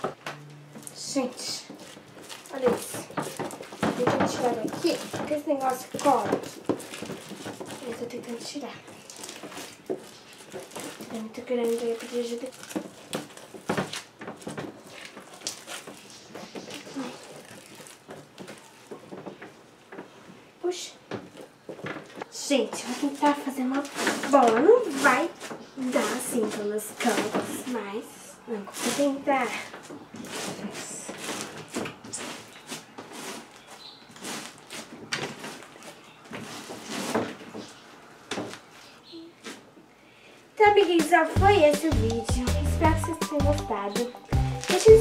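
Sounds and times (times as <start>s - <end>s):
slime squishing: 1.2s - 20.1s.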